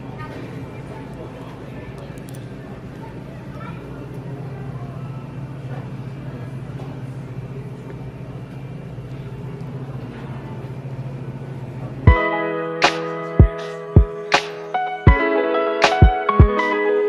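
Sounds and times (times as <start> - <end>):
plucked guitar music: 12.1 - 17.0.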